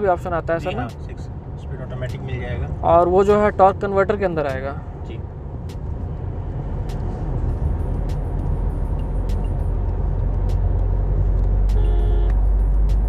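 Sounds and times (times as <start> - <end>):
road and engine rumble: 0.0 - 13.0
car horn: 11.7 - 12.5.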